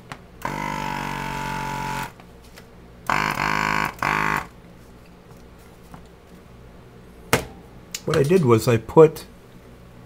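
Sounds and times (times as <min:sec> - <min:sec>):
vacuum pump buzzing in bursts: 0:00.0 - 0:02.2, 0:03.0 - 0:04.7.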